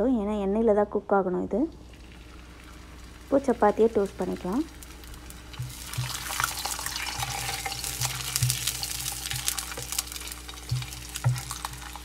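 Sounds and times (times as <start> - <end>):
bread frying in sizzling oil: 1.7 - 12.0
wooden spatula knocks and scrapes: 10.6 - 12.0.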